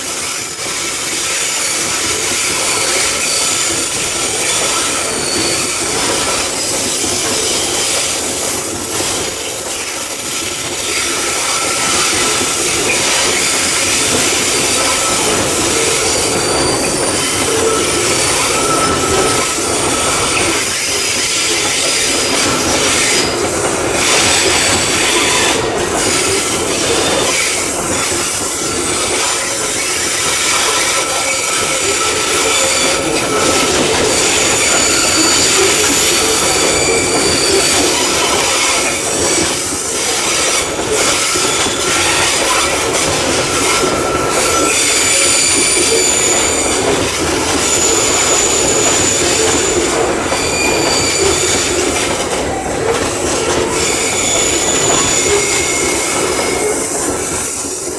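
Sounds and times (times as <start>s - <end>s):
train wheels rumbling on rail: 0.0s - 57.9s
high wheel squeals: 0.8s - 8.0s, 10.8s - 57.9s.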